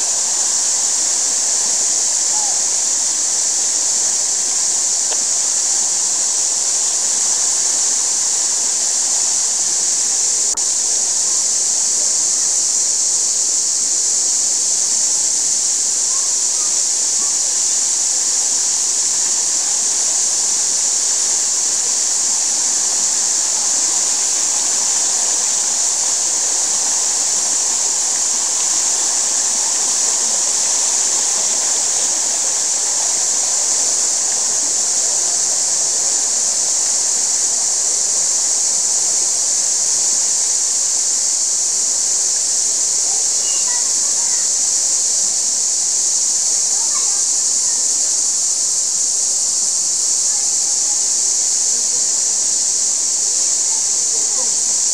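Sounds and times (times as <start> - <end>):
stream running over stones: 16.7 - 38.6.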